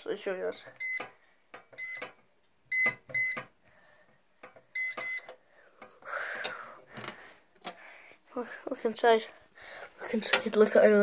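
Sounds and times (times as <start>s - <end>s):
keypad beeping: 0.8s - 1.1s, 1.8s - 3.5s, 4.7s - 5.4s.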